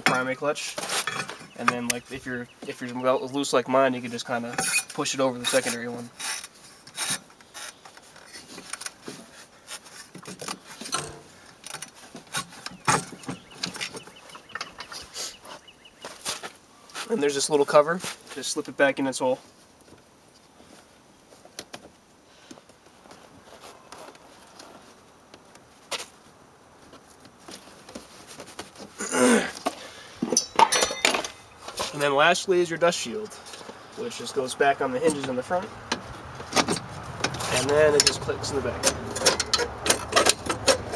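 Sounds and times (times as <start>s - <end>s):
rubber belt scraping metal: 4.5s - 10.1s
parts rattling: 10.1s - 15.1s, 29.6s - 32.0s, 35.0s - 40.9s.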